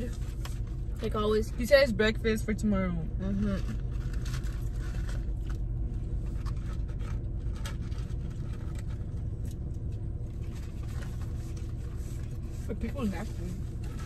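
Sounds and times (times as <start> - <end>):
car cabin hum: 0.0 - 14.0
paper food packaging rustling: 3.5 - 14.0.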